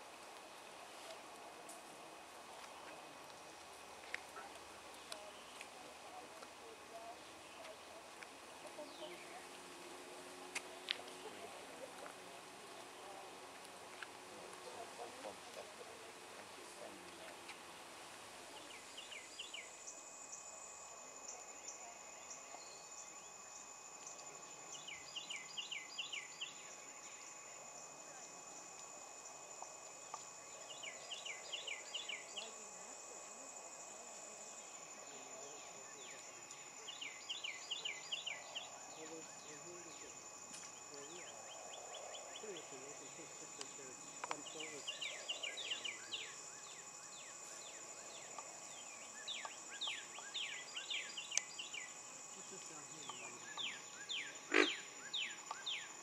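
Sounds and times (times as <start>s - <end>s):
high insect drone: 0.0s - 56.0s
small birds calling: 43.6s - 56.0s.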